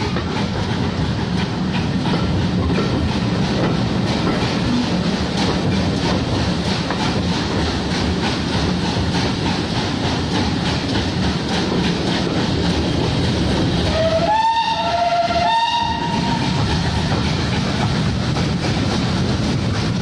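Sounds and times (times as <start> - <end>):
steam locomotive running beat: 0.0 - 20.0
steam whistles: 13.9 - 16.6.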